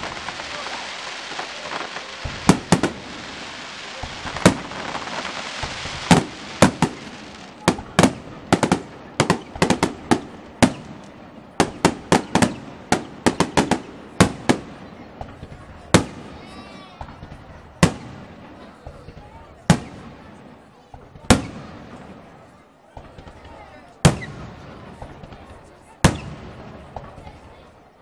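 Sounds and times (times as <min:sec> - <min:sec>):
steady hiss: 0:00.0 - 0:14.9
fireworks bursting in sharp bangs: 0:00.0 - 0:28.0.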